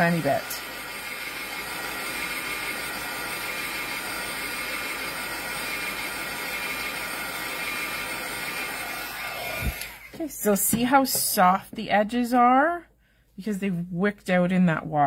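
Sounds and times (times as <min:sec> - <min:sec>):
heat tool blowing hot air: 0:00.0 - 0:10.2.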